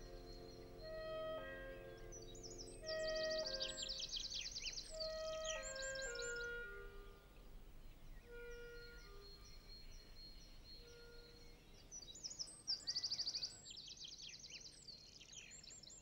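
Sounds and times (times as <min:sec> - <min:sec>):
soft sustained music notes: 0:00.0 - 0:12.7
songbirds singing: 0:00.0 - 0:16.0.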